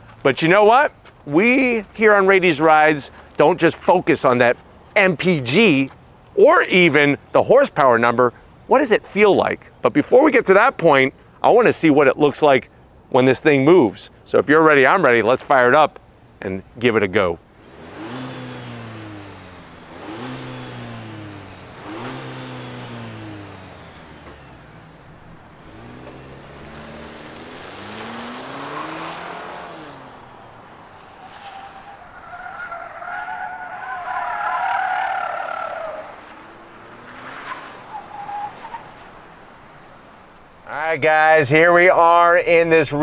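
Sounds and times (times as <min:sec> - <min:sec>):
truck engine accelerating hard: 0:17.6 - 0:40.3
tyres squealing: 0:25.7 - 0:39.2.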